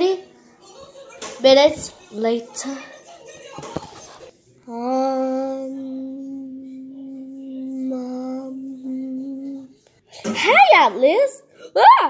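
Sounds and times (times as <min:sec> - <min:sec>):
child singing a long note: 0:04.7 - 0:09.7.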